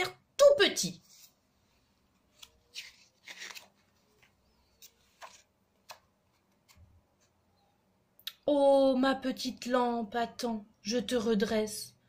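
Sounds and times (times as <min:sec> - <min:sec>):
book page turning: 0:01.0 - 0:07.4.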